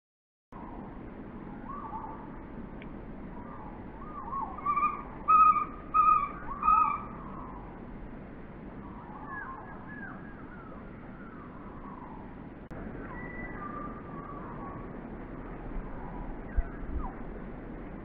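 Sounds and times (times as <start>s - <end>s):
kingfisher whistled calls: 3.4s - 7.7s, 13.0s - 14.8s.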